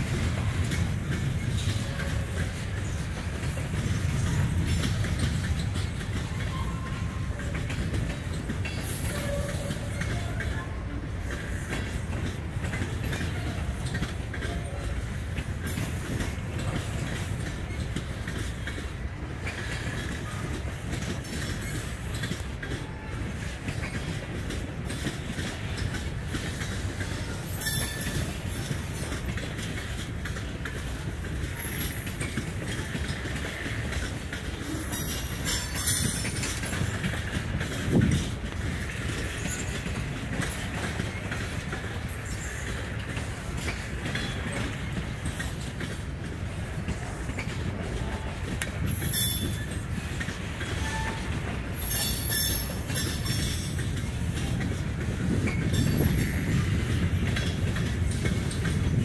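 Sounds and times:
train wheels rumbling on rails: 0.0 - 59.0
high wheel squeals: 50.8 - 54.1.

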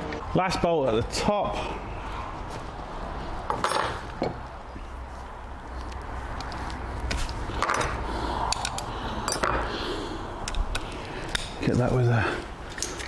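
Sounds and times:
hand tools clicking on metal: 7.6 - 9.6.

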